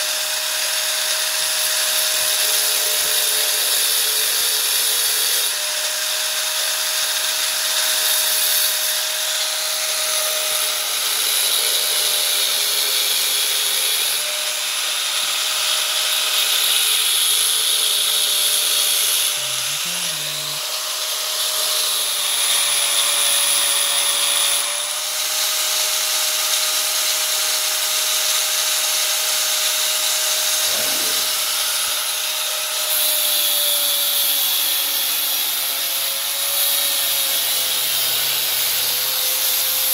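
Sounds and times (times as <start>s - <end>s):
angle grinder cutting steel: 0.0s - 39.9s.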